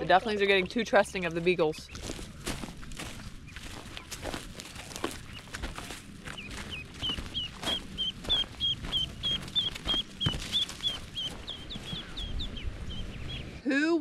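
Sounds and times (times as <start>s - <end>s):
ducklings peeping: 0.1s - 13.6s
steps rustling in dry leaves: 1.2s - 12.2s.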